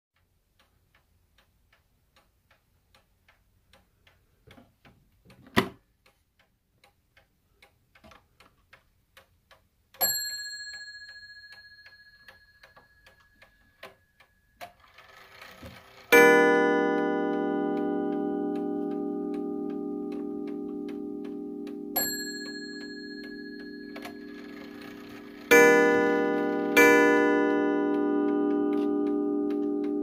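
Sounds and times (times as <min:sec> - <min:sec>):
clock ticking: 0:00.2 - 0:30.0
clock bell ringing: 0:10.0 - 0:13.4, 0:14.8 - 0:30.0.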